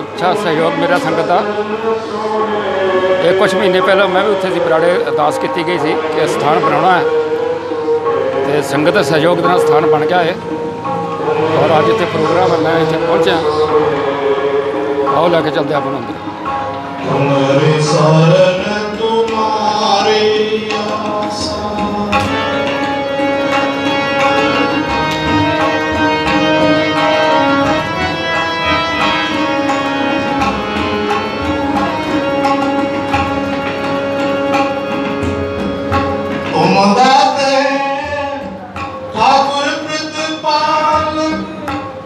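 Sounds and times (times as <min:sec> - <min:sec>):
harmonium drone: 0:00.0 - 0:42.0
tabla strokes: 0:00.0 - 0:42.0.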